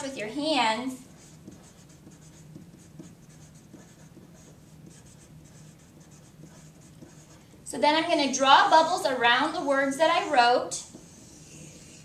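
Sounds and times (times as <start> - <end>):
marker writing on paper: 1.1 - 7.6, 10.2 - 12.0.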